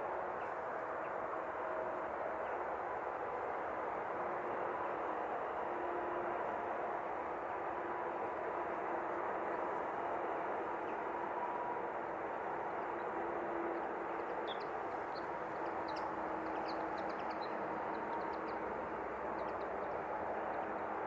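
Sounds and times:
faint hum: 0.0s - 21.0s
small birds chirping: 14.3s - 20.8s.

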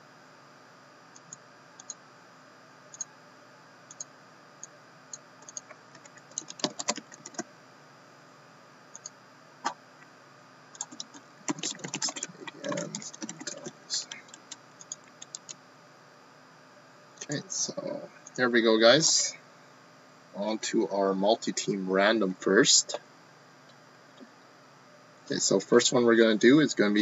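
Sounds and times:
laptop keyboard typing: 5.4s - 7.5s, 10.8s - 15.6s.

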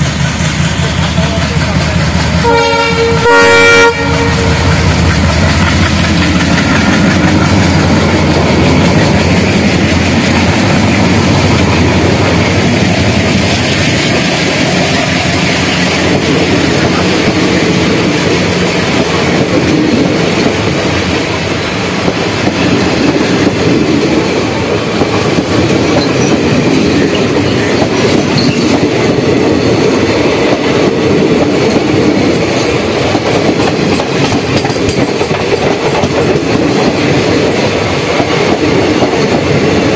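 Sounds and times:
diesel locomotive engine throb: 0.0s - 39.9s
train wheels clacking on rail joints: 0.0s - 39.9s.

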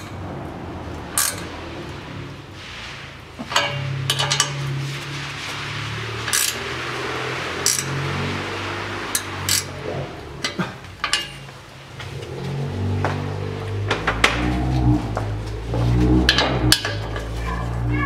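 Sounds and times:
metal wrench clinking on nuts: 1.1s - 1.5s, 3.5s - 4.6s, 7.6s - 7.9s, 11.0s - 11.5s.

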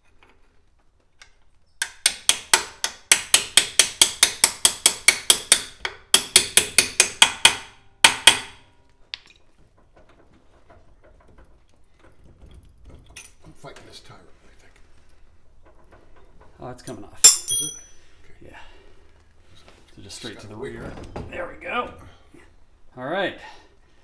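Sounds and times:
hammer ringing on steel: 17.3s - 18.0s.

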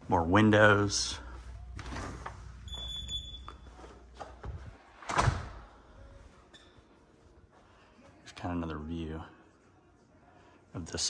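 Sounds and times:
electronic beep: 2.6s - 3.7s.

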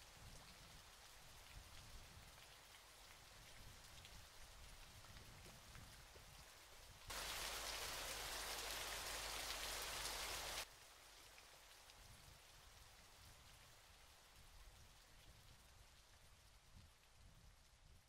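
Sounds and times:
waterfall hissing: 7.1s - 10.7s.

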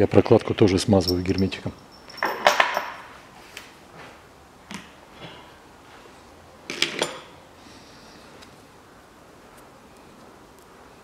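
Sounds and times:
metal tools clinking: 1.0s - 3.1s.

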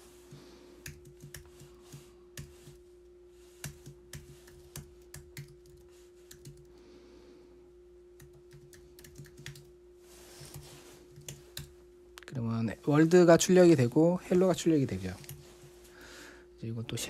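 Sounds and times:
faint steady hum: 0.0s - 17.0s
keyboard typing: 0.8s - 2.8s, 3.6s - 6.7s, 8.2s - 9.7s.

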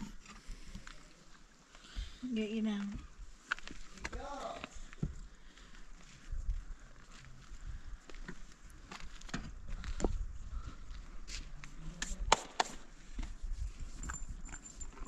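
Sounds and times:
footsteps on concrete: 2.8s - 13.4s.

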